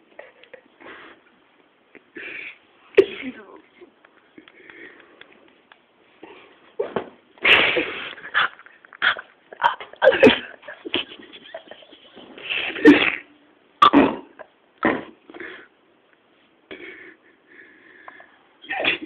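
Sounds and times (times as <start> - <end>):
stifled snorting laughter: 7.4 - 13.0.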